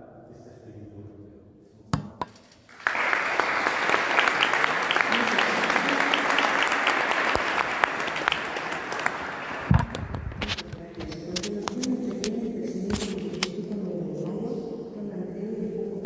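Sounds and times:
audience applauding: 2.7 - 10.4.

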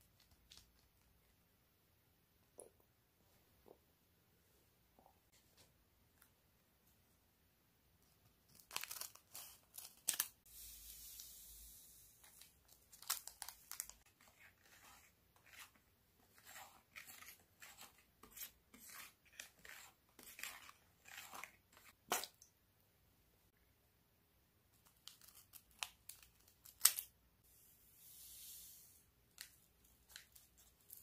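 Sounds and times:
powder pouring hiss: 10.5 - 12.2, 28.0 - 29.0.

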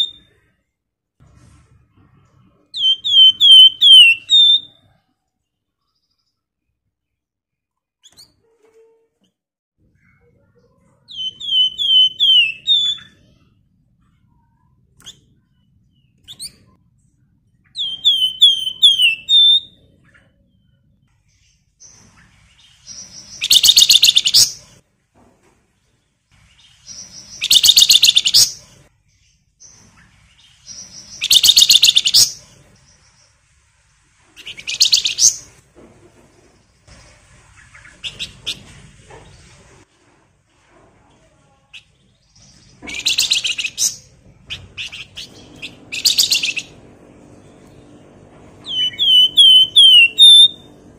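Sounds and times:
bird chirps and whistles: 2.8 - 4.8, 11.1 - 13.1, 17.8 - 19.8, 22.9 - 24.6, 26.9 - 28.6, 30.7 - 32.4, 44.8 - 46.7, 48.6 - 50.7.

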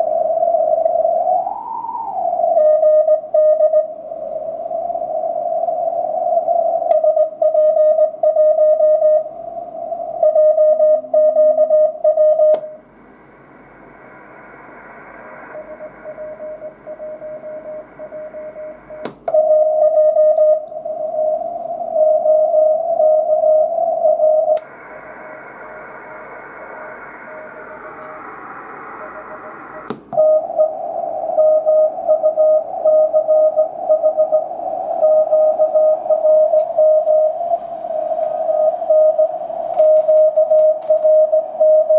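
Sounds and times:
morse code tone: 2.6 - 3.9, 7.0 - 9.2, 10.2 - 12.7, 15.6 - 21.4, 31.4 - 37.4
radio band hiss: 12.7 - 19.3, 23.7 - 41.6
audio filter switch clicks: 29.8 - 30.2.

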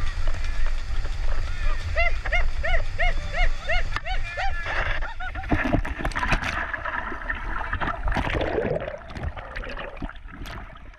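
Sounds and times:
man laughing: 2.0 - 5.6.

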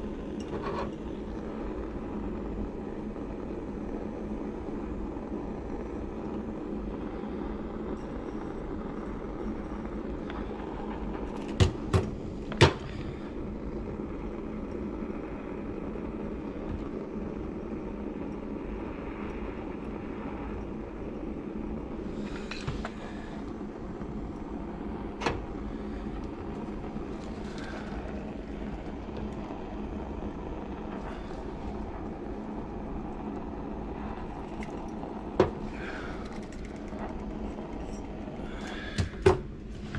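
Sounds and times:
kitchen torch flame burning: 0.0 - 39.9.

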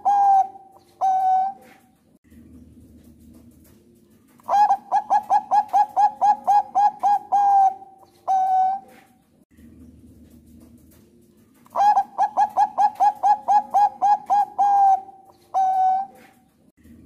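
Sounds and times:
dove cooing: 0.0 - 2.0, 4.4 - 9.2, 11.6 - 16.6.

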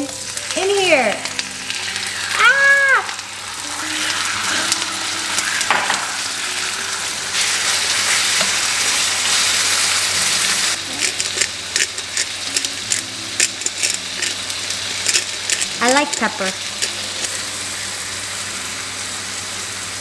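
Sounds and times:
chicken and onions sizzling in wok: 0.0 - 20.0
spatula stirring: 10.7 - 17.5.

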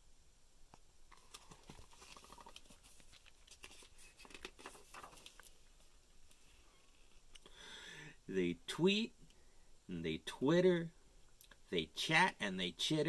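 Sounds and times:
book pages rustling and turning: 1.1 - 7.3.

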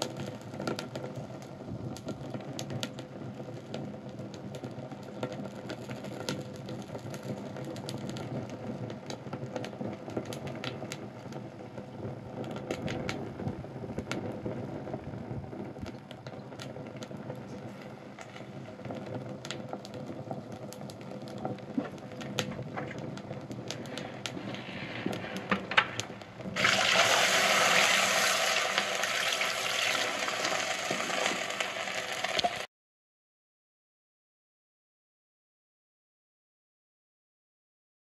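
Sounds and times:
fire crackling and popping: 0.0 - 32.7
loud steady hiss: 23.7 - 32.7.

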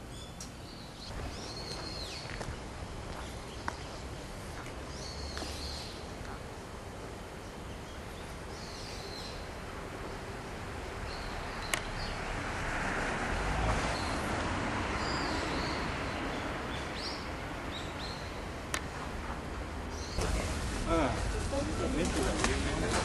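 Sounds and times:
steady background hum: 0.0 - 12.4
birds chirping: 0.0 - 12.5, 13.8 - 20.4.

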